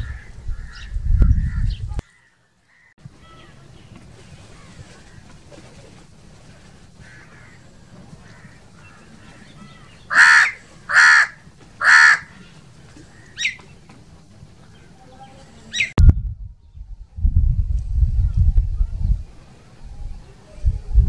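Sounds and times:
crow cawing: 1.5s - 3.5s, 7.0s - 12.4s
low thump with rumble: 16.0s - 19.1s.

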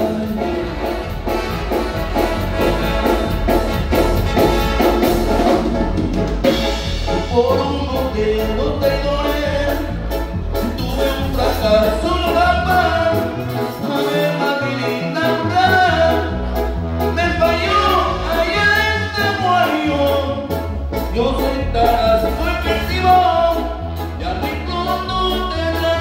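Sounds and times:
person singing: 0.0s - 1.1s, 6.9s - 26.0s
band playing latin dance music: 0.0s - 26.0s
bass line: 0.0s - 26.0s.

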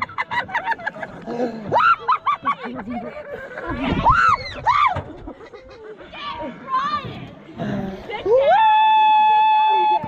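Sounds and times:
people laughing: 0.0s - 6.6s.

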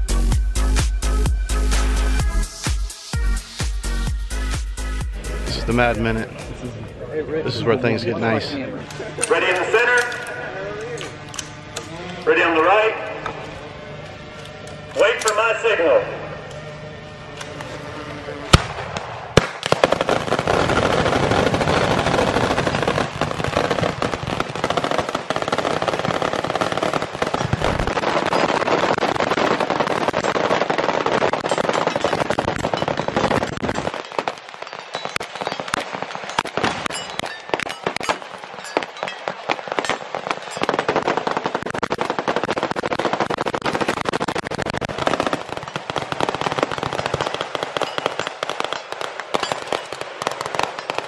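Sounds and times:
single gunshot: 18.5s - 19.8s
massed rifle and machine gun fire: 18.6s - 34.0s, 40.8s - 48.3s.

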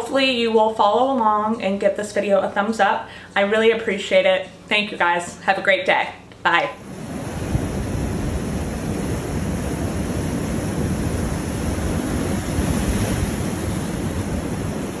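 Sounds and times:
surf breaking on rocky shore: 6.8s - 15.0s
wind rumbling on microphone: 6.8s - 15.0s.

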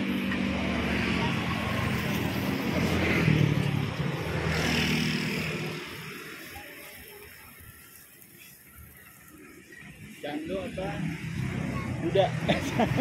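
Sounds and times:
vehicle driving past: 0.0s - 6.3s.

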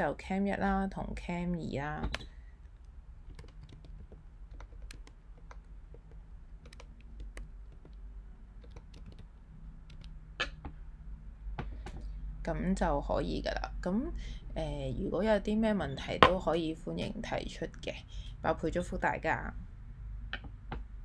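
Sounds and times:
keyboard typing: 1.8s - 10.8s.

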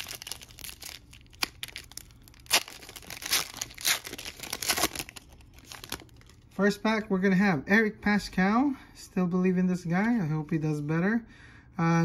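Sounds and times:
foil wrapper crinkling torn open: 0.0s - 6.5s.

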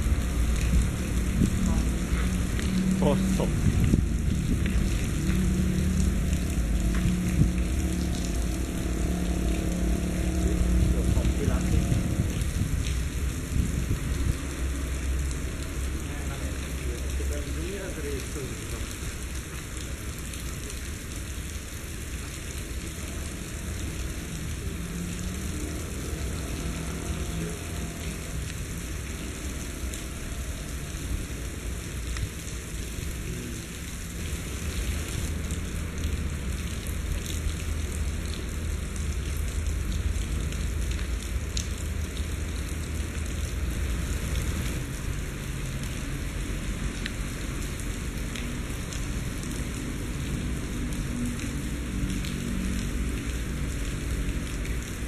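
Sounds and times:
heavy rain hissing: 0.0s - 55.0s.

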